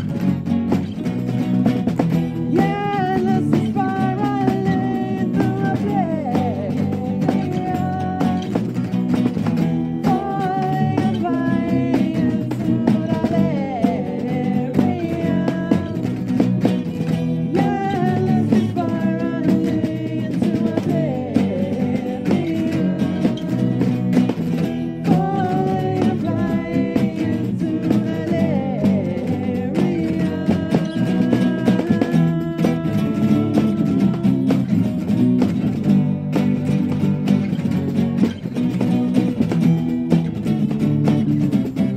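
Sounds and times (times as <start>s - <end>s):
strummed acoustic guitars: 0.0s - 41.9s.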